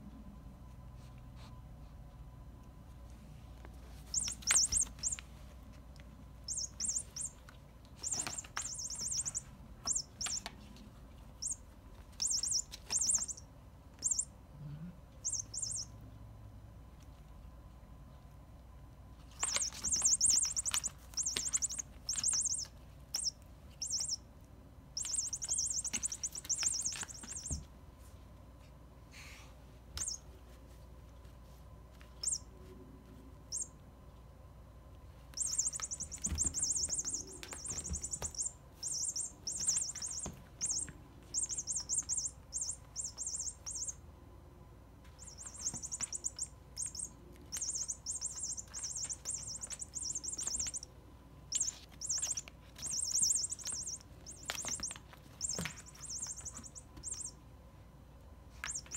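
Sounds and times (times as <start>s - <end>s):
toy chirping trills: 4.0s - 5.3s, 6.4s - 10.7s, 11.3s - 14.4s, 15.2s - 16.0s, 19.2s - 24.3s, 24.9s - 27.7s, 30.0s - 30.3s, 32.0s - 32.5s, 33.5s - 33.8s, 35.3s - 44.1s, 45.1s - 57.4s, 58.6s - 58.9s.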